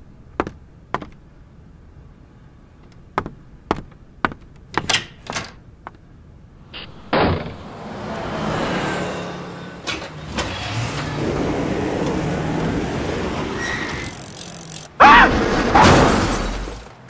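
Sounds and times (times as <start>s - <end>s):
footsteps clicking: 0.4s - 1.2s, 2.8s - 6.1s
door banging shut: 4.7s - 5.6s, 7.0s - 7.6s
vehicle engine running: 6.5s - 14.8s.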